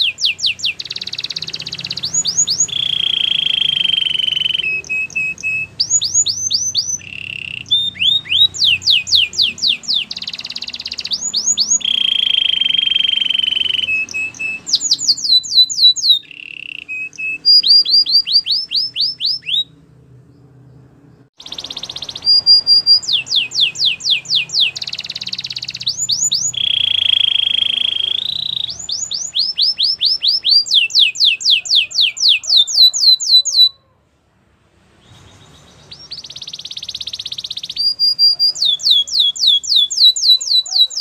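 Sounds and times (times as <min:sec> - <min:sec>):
canary singing: 0:00.0 - 0:34.0, 0:34.9 - 0:41.0.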